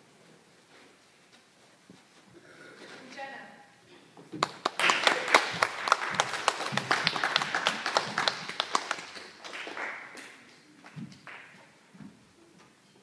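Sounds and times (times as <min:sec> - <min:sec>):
group applauding: 0:04.4 - 0:11.8.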